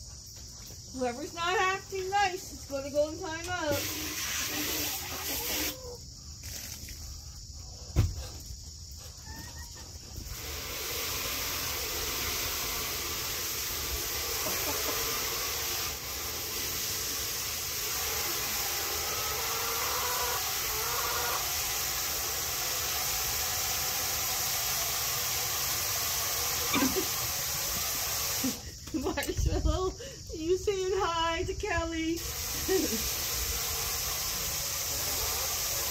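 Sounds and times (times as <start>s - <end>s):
steady hiss: 0.0s - 8.8s, 10.0s - 35.9s
chickens clucking: 3.7s - 7.9s, 9.0s - 28.0s, 33.4s - 35.9s.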